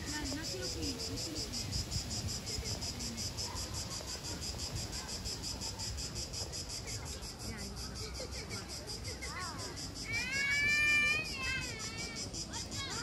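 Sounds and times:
insects chirping: 0.0 - 13.0.

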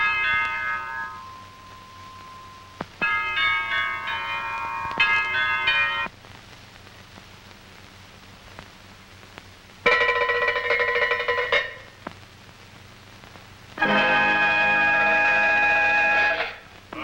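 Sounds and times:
bells struck in a tune: 0.0 - 6.1
soundtrack hiss: 0.0 - 17.0.

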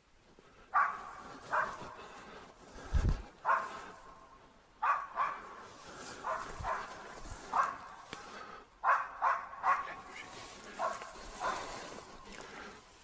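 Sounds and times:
dog barking: 0.7 - 2.0, 3.4 - 4.0, 4.8 - 8.1, 8.8 - 11.9.

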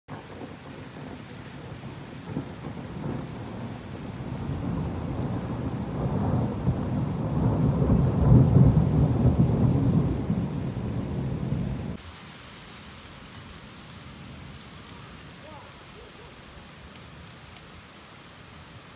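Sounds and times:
rolling thunder: 0.1 - 12.0
steady rain hiss: 0.1 - 18.9.

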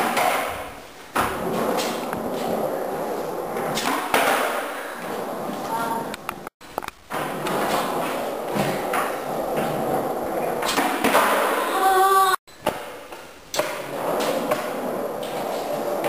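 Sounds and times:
skateboard clacks and thuds: 0.0 - 6.5, 7.1 - 11.8, 12.6 - 16.0
skateboard wheels rolling on concrete: 0.0 - 16.0.

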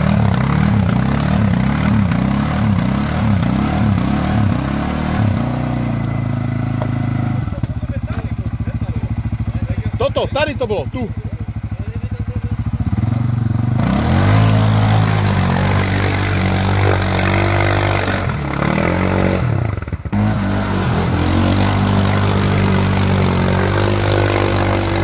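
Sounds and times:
quad bike engine revving: 0.0 - 25.0.

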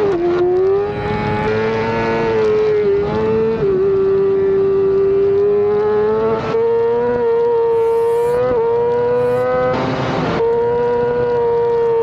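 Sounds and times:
motorcycle engine at high revs: 0.0 - 12.0
rushing noise: 7.7 - 8.4, 9.2 - 9.5.

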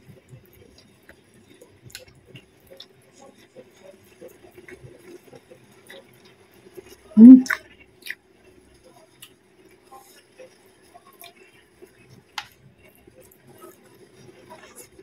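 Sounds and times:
short loud voiced sound: 7.2 - 7.5.

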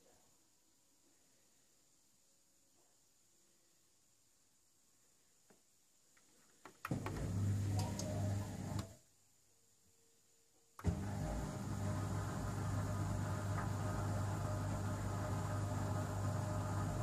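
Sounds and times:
dishwasher pump motor humming: 6.9 - 9.0, 10.8 - 17.0.

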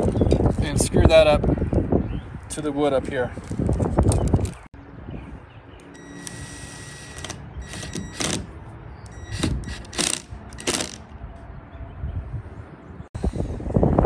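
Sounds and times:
power drill driving screws: 6.0 - 8.5, 9.2 - 11.0.

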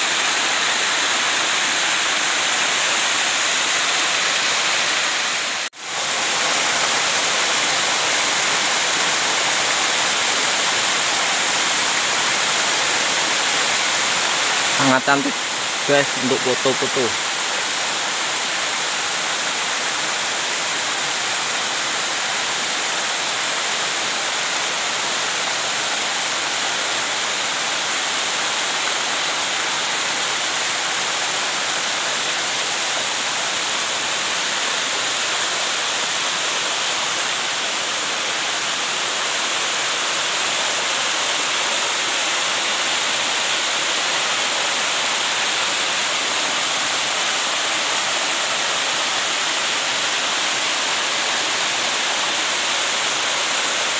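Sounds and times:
small waterfall rushing: 0.0 - 53.9.

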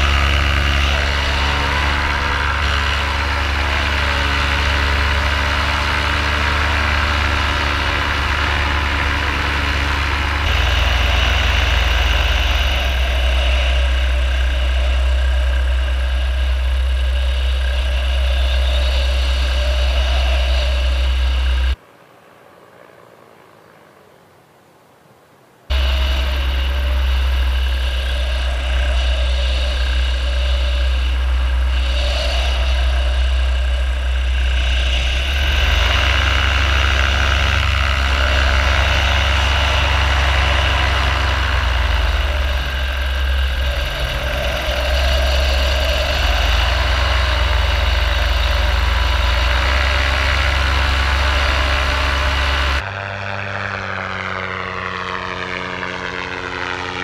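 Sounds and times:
paramotor engine and propeller drone: 0.0 - 24.4, 25.7 - 57.0.

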